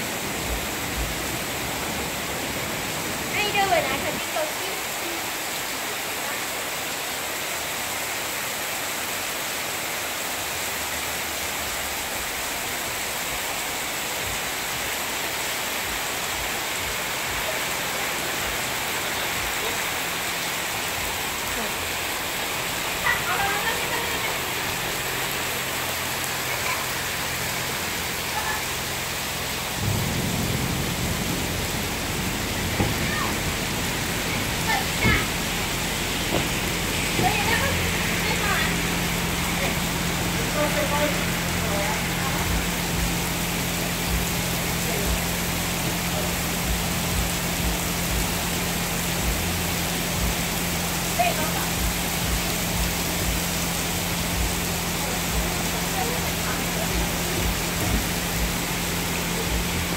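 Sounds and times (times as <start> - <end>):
heavy rain on pavement: 0.0 - 59.9
deep low rumble: 28.8 - 51.1, 51.7 - 59.9.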